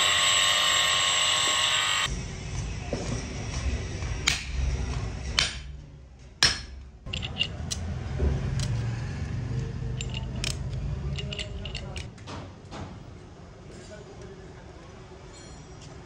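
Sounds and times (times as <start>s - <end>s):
hammer striking metal bearing: 4.2s - 4.7s, 5.3s - 5.8s, 6.4s - 7.9s
metallic clinks of steel rollers: 7.1s - 8.0s, 9.8s - 12.1s.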